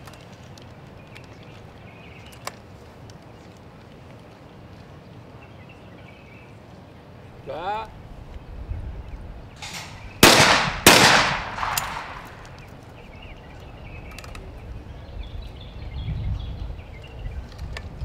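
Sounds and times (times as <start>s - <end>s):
shotgun shots with echo: 9.6s - 12.6s.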